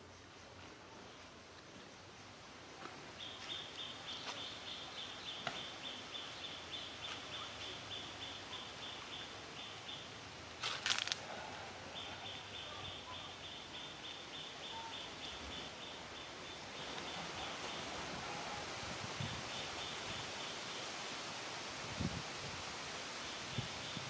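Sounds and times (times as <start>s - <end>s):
rustling crackle: 10.6s - 11.2s.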